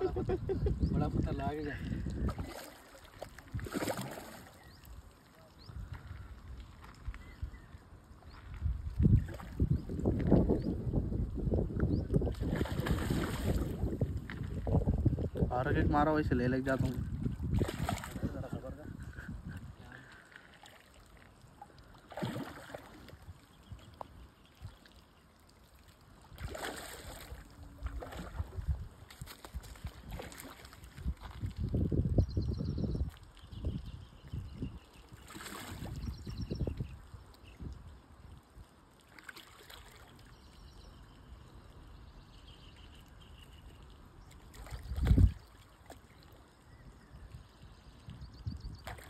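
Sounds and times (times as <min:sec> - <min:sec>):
faint lapping water: 0:00.0 - 0:32.0, 0:33.0 - 0:49.0
fish splashing in water: 0:02.1 - 0:05.0, 0:12.2 - 0:14.7, 0:17.4 - 0:18.3, 0:20.2 - 0:31.6, 0:35.0 - 0:36.3, 0:39.0 - 0:40.3, 0:43.7 - 0:46.6, 0:48.8 - 0:49.0.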